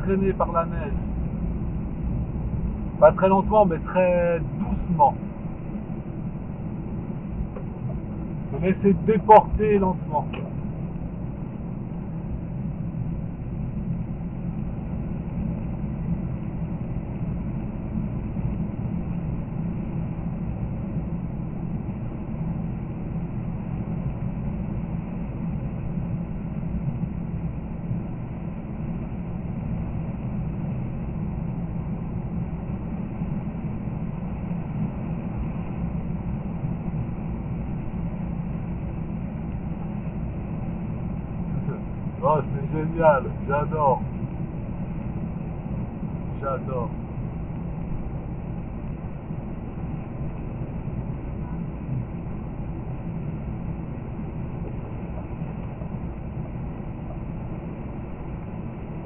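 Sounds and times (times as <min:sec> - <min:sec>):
car cabin road noise: 0:00.0 - 0:21.2, 0:34.3 - 0:59.0.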